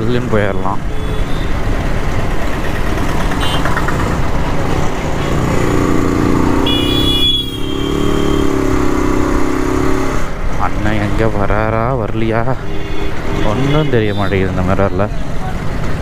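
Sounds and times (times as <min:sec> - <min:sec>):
wind and road noise: 0:00.0 - 0:16.0
vehicle horn: 0:00.9 - 0:01.6, 0:03.4 - 0:03.7, 0:06.6 - 0:08.7, 0:12.6 - 0:14.5
motorcycle engine running: 0:01.0 - 0:10.0.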